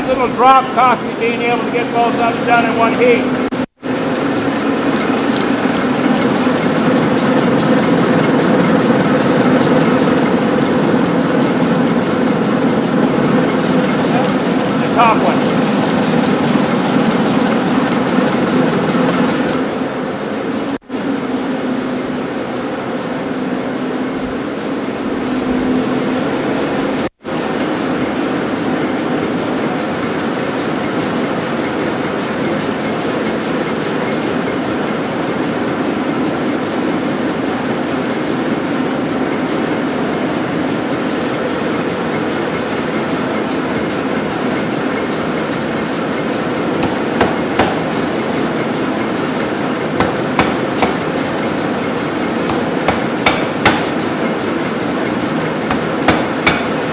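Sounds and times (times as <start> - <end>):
air hammer rumbling: 0.0 - 33.4, 42.0 - 56.9
hammer knocking on steel: 46.8 - 48.0, 50.0 - 51.2, 52.4 - 54.1, 55.7 - 56.9.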